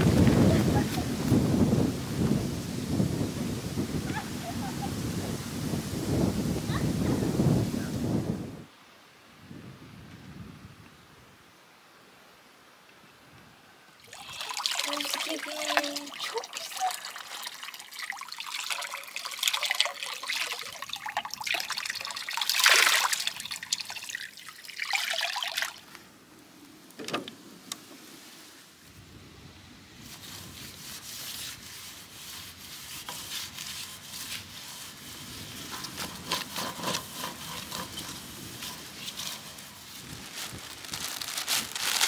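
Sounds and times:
water running into trough: 14.0 - 25.9, 32.1 - 40.6.

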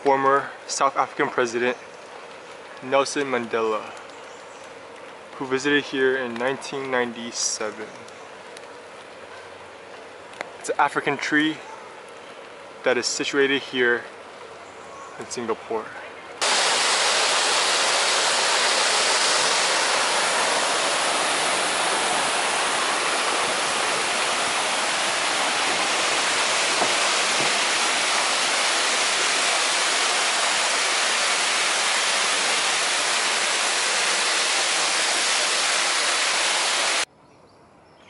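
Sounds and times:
waterfall rushing: 16.4 - 37.1.

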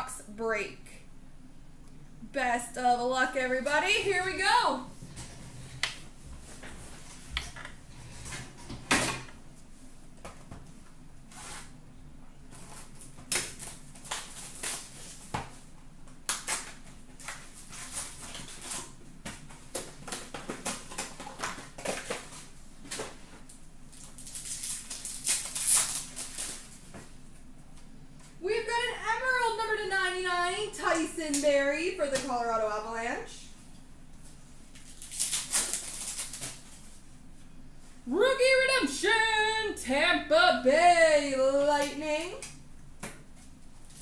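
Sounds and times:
card pack tearing open: 23.9 - 26.6, 34.8 - 36.7
pack wrapper crinkling: 23.9 - 26.8, 34.8 - 36.8.

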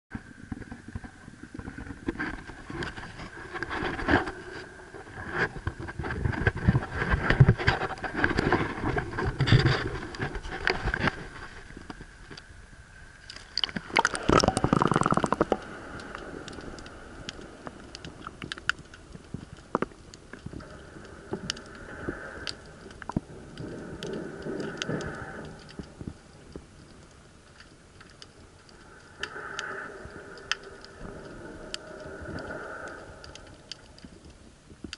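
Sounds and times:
rush of water: 13.2 - 26.2
sharp clicks underwater: 13.2 - 34.9
underwater hush: 13.6 - 16.1.

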